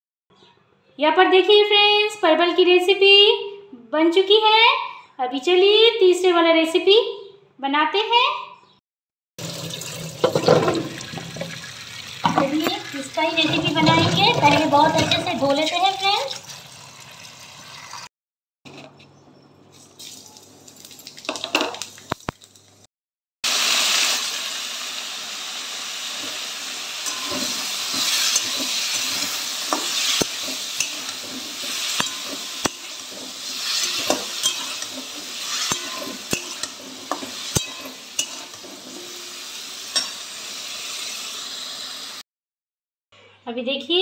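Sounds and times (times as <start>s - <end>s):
vegetables sizzling in hot oil: 9.4s - 18.0s, 23.4s - 42.2s
metal spatula scraping a wok: 26.2s - 41.2s.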